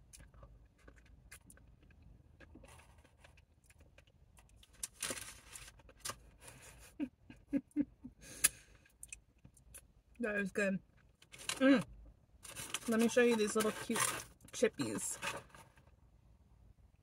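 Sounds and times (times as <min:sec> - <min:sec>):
wet chewing and smacking: 0:00.0 - 0:05.0.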